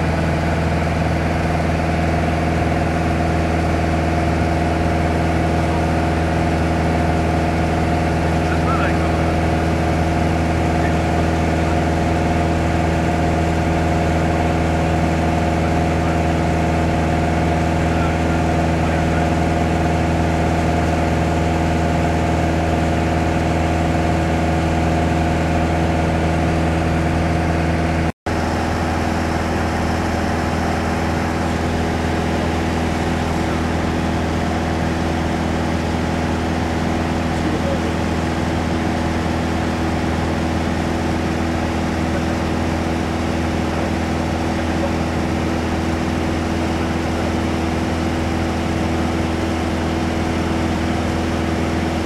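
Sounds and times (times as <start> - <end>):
aircraft engine and propeller droning: 0.0 - 52.0.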